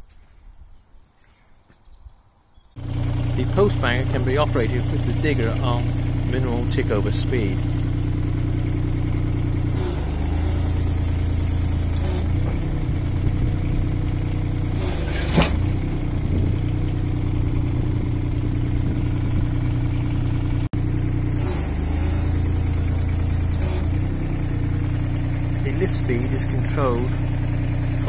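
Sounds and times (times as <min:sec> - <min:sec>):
diesel engine idling: 0:02.8 - 0:28.0
hydraulics hissing: 0:03.5 - 0:06.0, 0:09.7 - 0:12.3, 0:14.6 - 0:15.6, 0:21.3 - 0:24.4.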